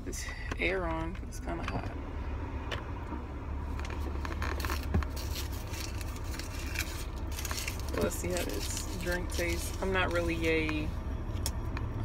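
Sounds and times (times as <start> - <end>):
car engine and air conditioning hum: 0.0 - 12.0
paper straw wrapper crinkling: 3.8 - 10.9.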